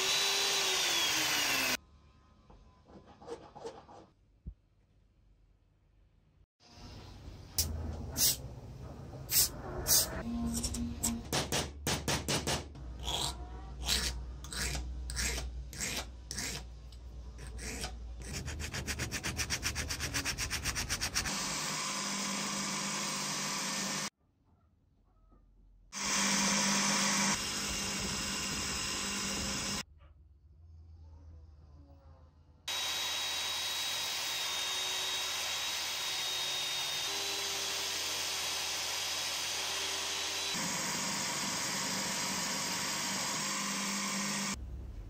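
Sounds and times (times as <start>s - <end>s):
bench grinder motor humming: 0.0s - 1.8s, 26.0s - 29.8s, 32.7s - 44.6s.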